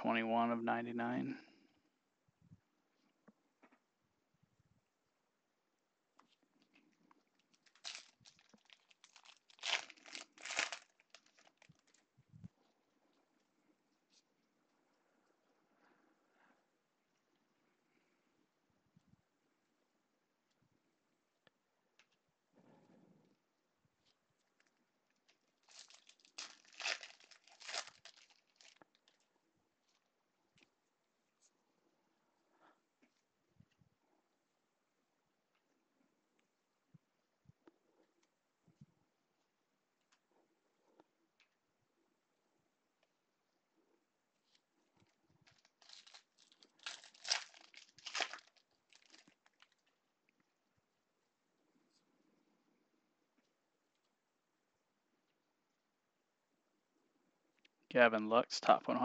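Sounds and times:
foil wrapper crinkling: 7.4s - 12.1s, 25.2s - 29.3s, 44.4s - 49.9s.

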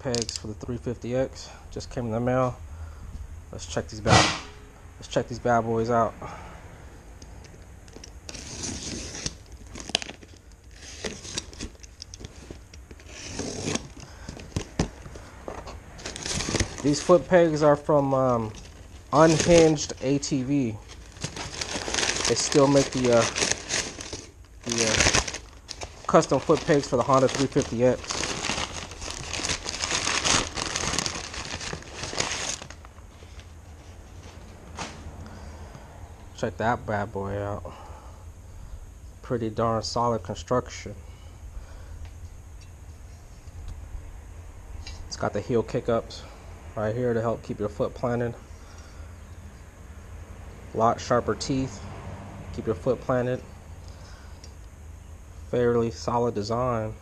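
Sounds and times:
packing tape tearing: 7.9s - 14.9s, 16.0s - 17.2s, 18.2s - 32.9s.

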